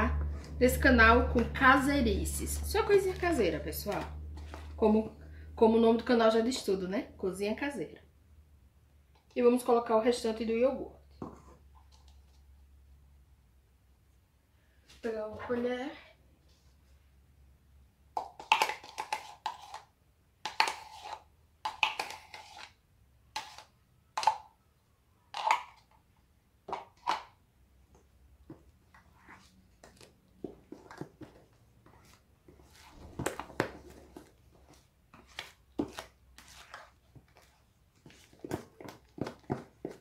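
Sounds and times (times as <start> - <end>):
wooden spoon stirring batter in bowl: 2.4 - 5.0, 18.2 - 23.8, 27.9 - 40.0
plastic spoon scraping plastic pot: 18.4 - 24.4, 29.0 - 40.0.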